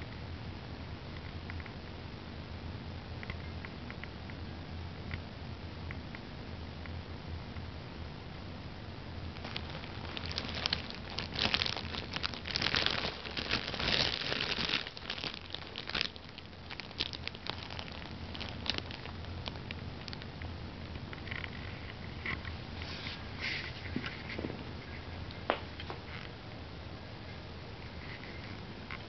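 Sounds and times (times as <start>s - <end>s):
fabric cat tunnel rustling: 9.4s - 20.2s.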